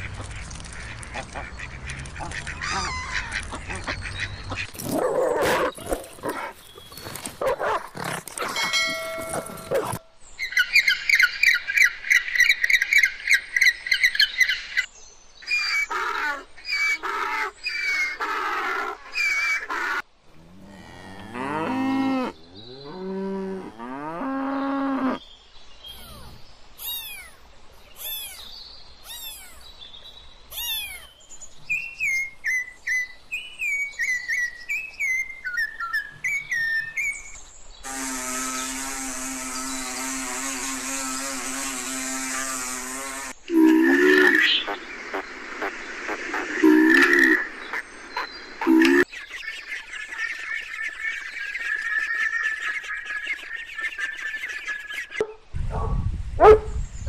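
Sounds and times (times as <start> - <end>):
low drawn-out arching calls: 37.8 - 55.3
wasps buzzing: 37.9 - 44.0
harmonic animal calls: 43.5 - 55.2.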